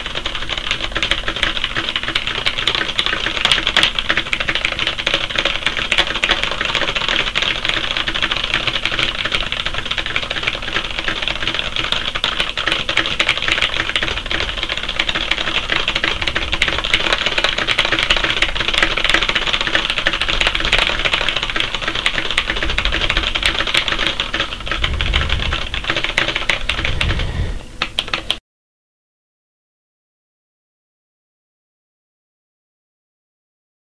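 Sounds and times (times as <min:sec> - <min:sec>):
fast typing on keyboard: 0:00.0 - 0:28.4.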